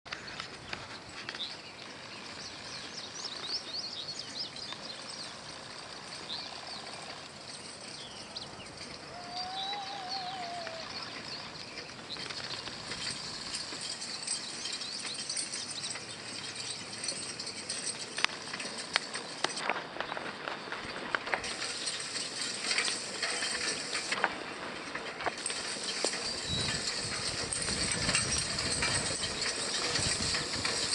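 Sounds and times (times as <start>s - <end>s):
birds chirping: 0.1s - 16.3s
hay rake rattling: 0.1s - 30.9s
wavering whistle: 9.0s - 11.1s.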